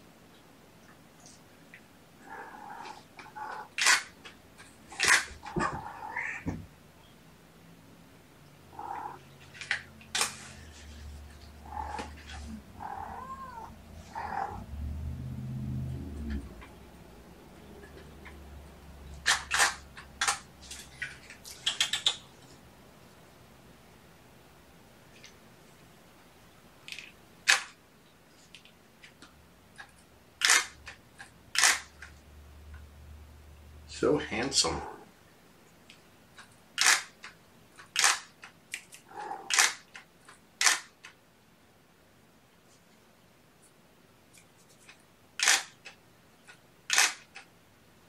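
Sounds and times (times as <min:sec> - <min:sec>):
kittens mewing: 0:02.2 - 0:03.9, 0:04.9 - 0:06.6, 0:08.7 - 0:09.3, 0:10.7 - 0:14.7, 0:34.6 - 0:35.1, 0:39.0 - 0:39.7
camera shutter clicks: 0:03.8 - 0:04.1, 0:19.2 - 0:20.4, 0:30.4 - 0:30.8, 0:31.6 - 0:32.0, 0:36.8 - 0:37.2, 0:37.9 - 0:38.3, 0:39.5 - 0:39.9, 0:40.6 - 0:40.9, 0:45.4 - 0:45.8, 0:46.9 - 0:47.3
low hum: 0:12.4 - 0:19.1
sharp clicks: 0:19.2 - 0:20.5, 0:21.5 - 0:22.2, 0:29.8 - 0:32.1, 0:36.4 - 0:41.2, 0:44.4 - 0:47.5.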